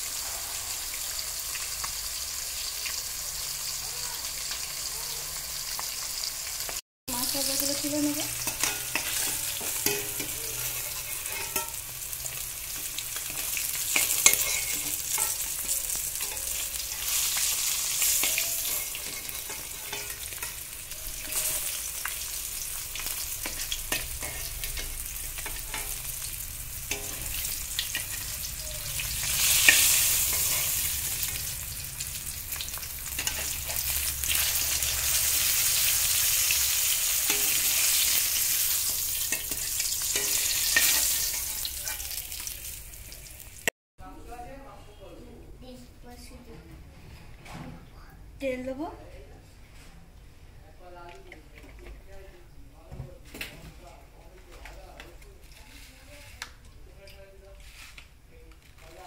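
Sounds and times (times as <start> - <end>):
fish sizzling in hot oil: 0.0 - 43.7
metal spatula scraping pan: 7.5 - 31.7, 32.5 - 42.2.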